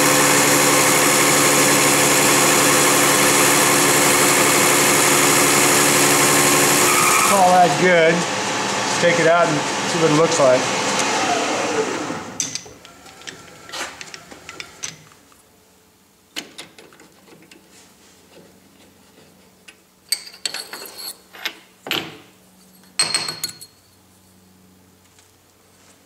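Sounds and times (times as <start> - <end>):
lathe spindle running down: 0.0 - 14.6.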